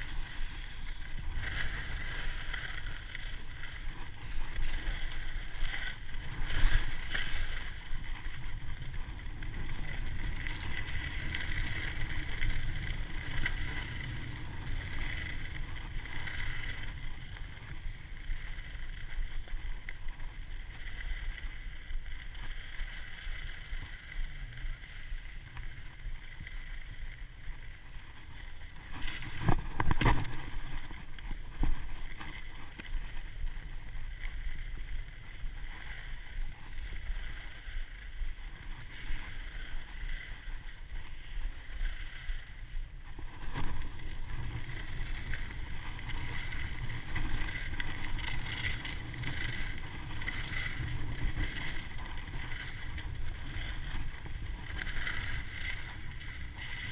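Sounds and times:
skis scraping over snow: 0:00.0 - 0:56.9.

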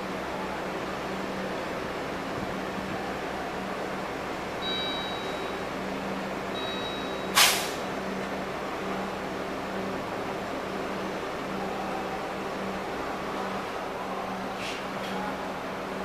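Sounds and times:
bus diesel engine idling: 0:00.0 - 0:16.0
compressed air hiss: 0:07.4 - 0:07.8.

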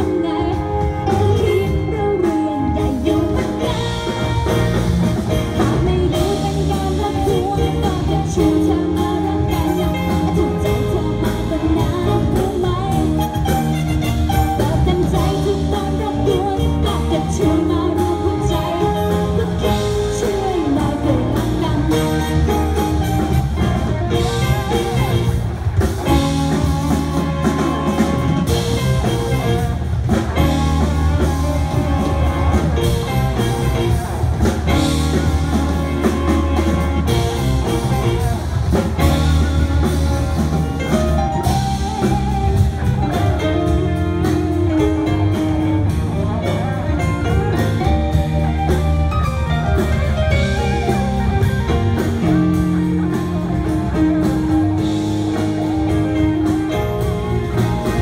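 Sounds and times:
singer: 0:00.0 - 0:29.7
live rock band playing: 0:00.0 - 0:58.0.

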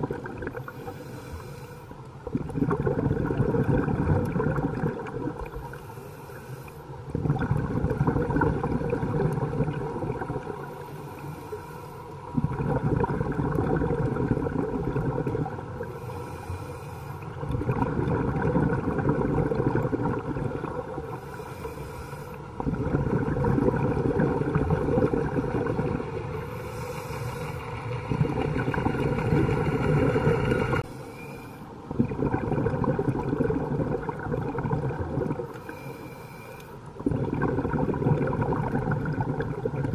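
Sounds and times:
underwater exhaled bubbles: 0:00.0 - 0:39.9.

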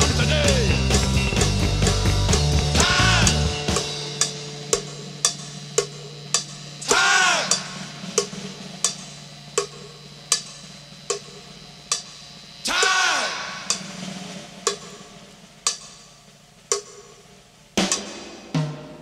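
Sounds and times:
rock music: 0:00.0 - 0:09.9.

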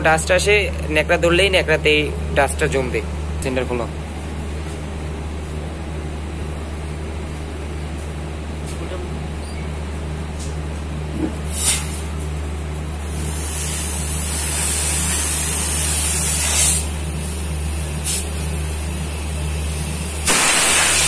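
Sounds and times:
steady low hum: 0:00.0 - 0:21.0
gas hissing from pipe: 0:11.4 - 0:21.0.

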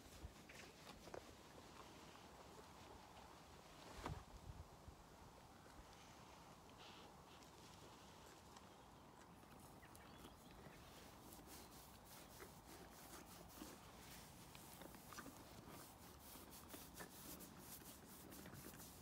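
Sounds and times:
hand rubbing horse's coat: 0:09.6 - 0:19.0.

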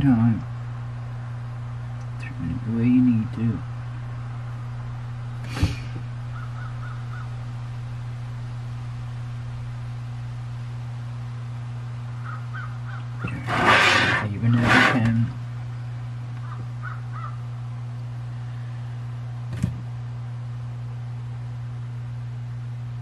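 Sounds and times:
low electrical hum: 0:00.0 - 0:23.0
loud harsh noisy sounds: 0:13.2 - 0:15.3.

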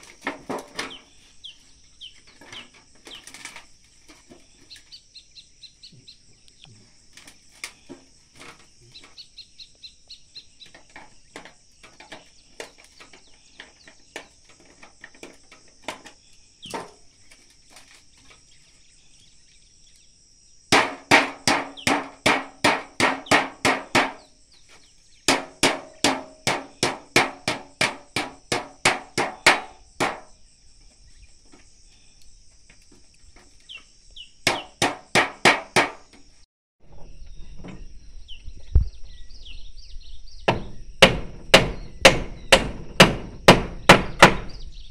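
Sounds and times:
high insect drone: 0:00.0 - 0:44.9.

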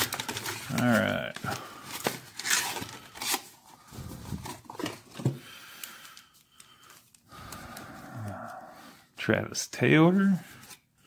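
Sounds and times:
paper and cardboard rustling: 0:00.0 - 0:05.5.

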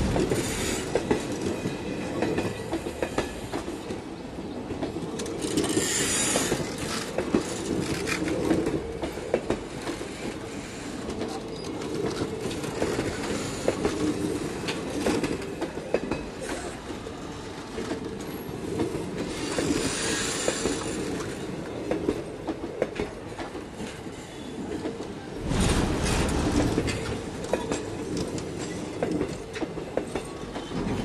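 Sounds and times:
train wheels rumbling on rails: 0:00.0 - 0:31.0
wheels clattering over rail joints: 0:25.4 - 0:31.0.

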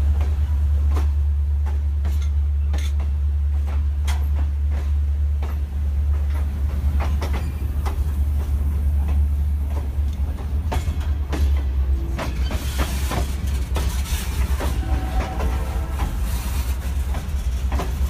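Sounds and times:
train cars clanking: 0:00.0 - 0:18.0
train wheels rumbling on rails: 0:00.0 - 0:18.0
hiss: 0:12.4 - 0:18.0.

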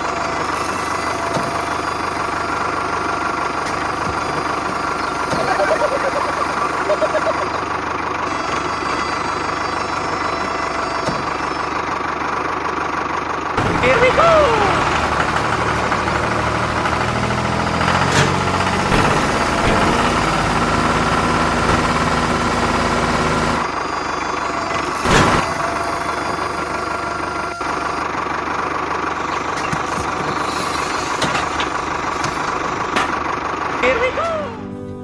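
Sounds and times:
small motor whining: 0:00.0 - 0:12.2, 0:17.0 - 0:28.2, 0:29.0 - 0:33.2.

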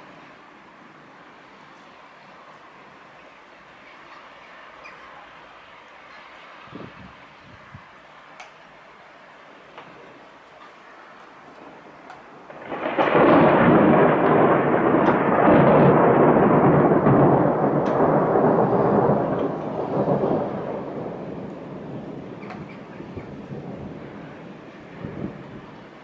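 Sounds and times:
thunder rumbling: 0:09.9 - 0:26.0.

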